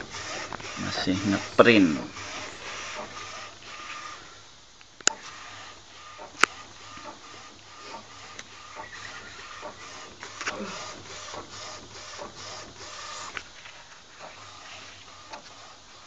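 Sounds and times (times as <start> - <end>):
printer carriage whirring and clicking: 0.0 - 16.0
sharp click: 4.8 - 5.3.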